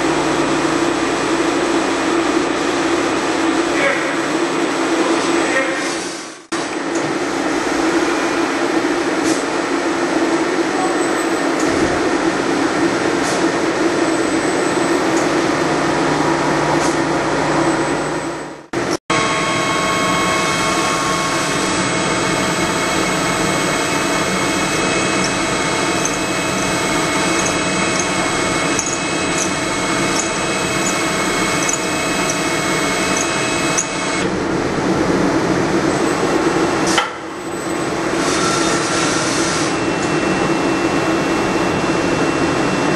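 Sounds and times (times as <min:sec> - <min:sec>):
lathe machining noise: 0:13.6 - 0:34.5
whining machine tones: 0:13.8 - 0:34.4, 0:39.6 - 0:42.9.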